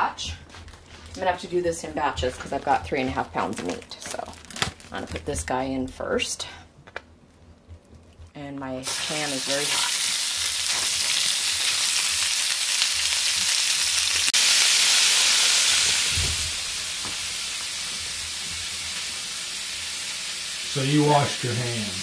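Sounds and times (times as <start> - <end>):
meat sizzling in a hot pan: 8.8 - 22.0.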